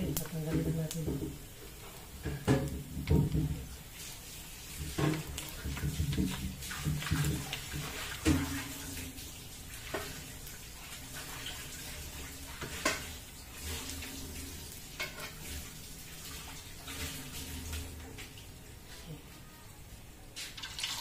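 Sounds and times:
meat sizzling in hot oil: 0:00.0 - 0:18.8, 0:20.4 - 0:21.0.

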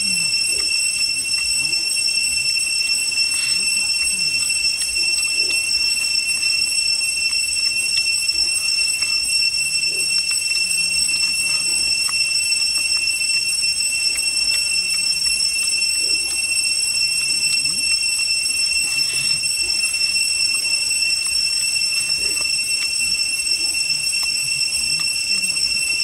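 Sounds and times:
cicadas droning: 0:00.0 - 0:26.0.

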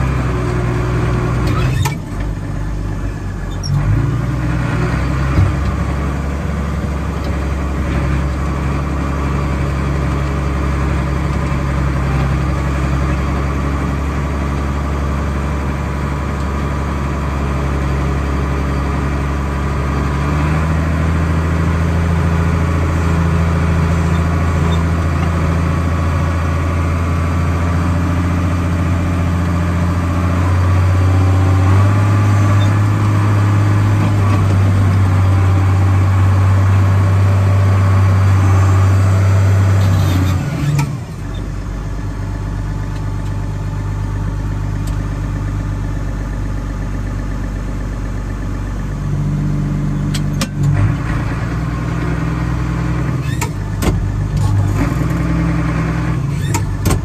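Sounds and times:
tractor diesel engine running: 0:00.0 - 0:57.0
sharp clunks: 0:56.5 - 0:57.0.

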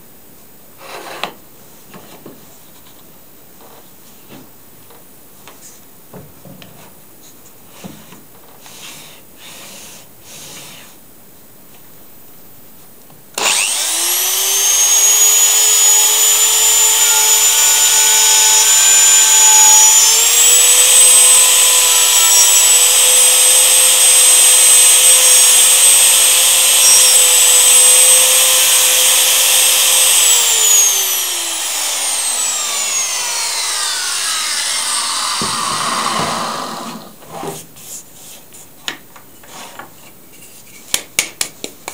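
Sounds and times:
electric router high whine: 0:13.4 - 0:37.2.

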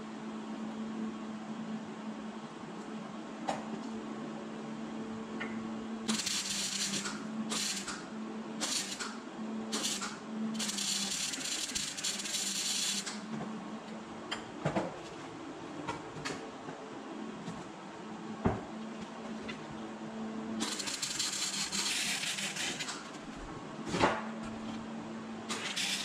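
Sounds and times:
welder hissing: 0:09.7 - 0:13.2.

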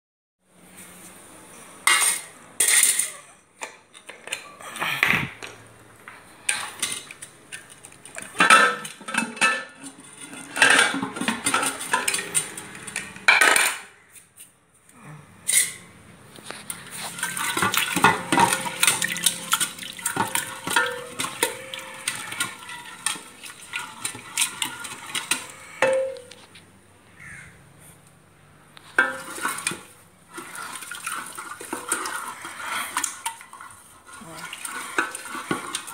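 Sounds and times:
pot and metal lid clattering: 0:01.8 - 0:04.5, 0:08.1 - 0:14.0, 0:17.0 - 0:26.4, 0:28.9 - 0:33.8
masher scraping in pot: 0:06.4 - 0:13.2, 0:15.4 - 0:26.6, 0:28.9 - 0:35.9.

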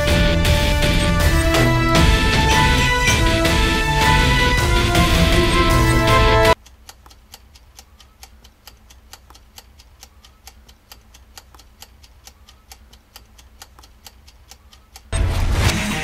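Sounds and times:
kitchen timer ticking: 0:06.5 - 0:15.2.

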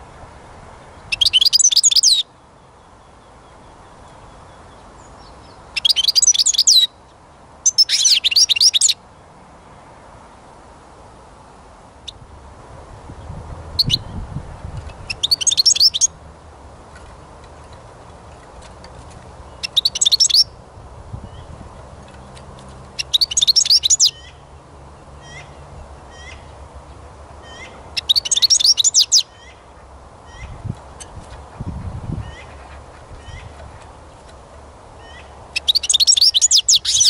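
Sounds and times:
bird twittering: 0:01.1 - 0:02.3, 0:03.5 - 0:07.0, 0:07.6 - 0:09.0, 0:13.8 - 0:14.1, 0:15.1 - 0:16.2, 0:19.5 - 0:20.6, 0:23.0 - 0:24.4, 0:27.4 - 0:29.6, 0:35.0 - 0:37.0
bird call notes: 0:03.1 - 0:07.0, 0:15.1 - 0:16.2, 0:19.5 - 0:20.6, 0:23.0 - 0:24.4, 0:27.4 - 0:30.6, 0:35.0 - 0:37.0.

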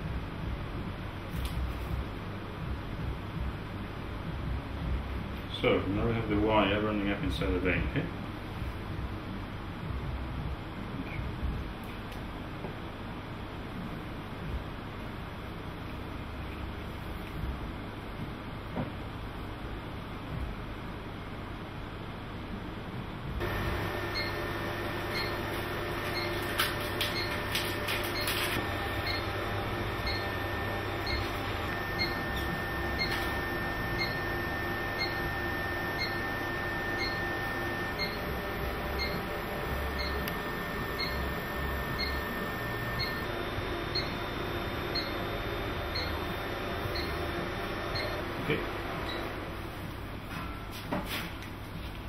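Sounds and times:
hum of room machinery: 0:00.0 - 0:52.0
short electronic beeps: 0:30.0 - 0:30.3, 0:31.0 - 0:34.3, 0:35.9 - 0:43.3, 0:43.9 - 0:45.3, 0:45.9 - 0:46.3, 0:46.9 - 0:47.3, 0:47.9 - 0:48.2.

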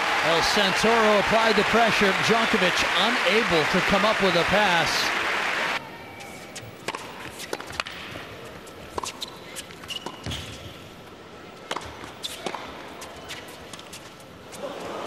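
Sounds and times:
racket striking ball: 0:06.8 - 0:08.0.

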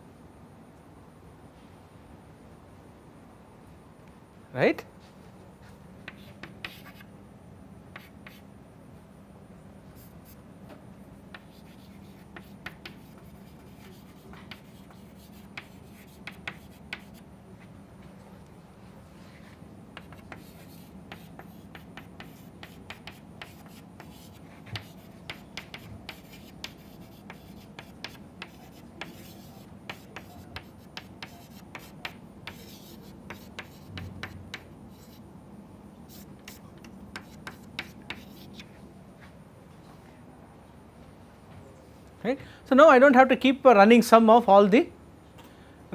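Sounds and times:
chalk tapping and scratching on board: 0:06.0 - 0:07.1, 0:07.9 - 0:08.4, 0:10.0 - 0:10.4, 0:11.3 - 0:17.2, 0:19.9 - 0:35.2, 0:36.1 - 0:38.7.

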